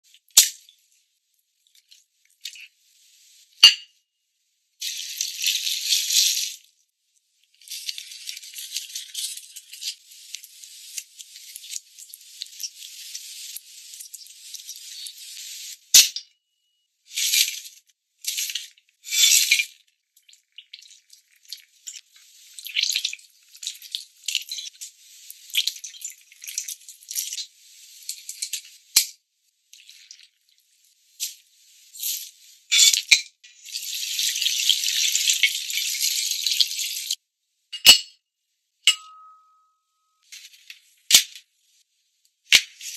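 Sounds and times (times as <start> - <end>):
sauce pouring: 33.5 - 37.1.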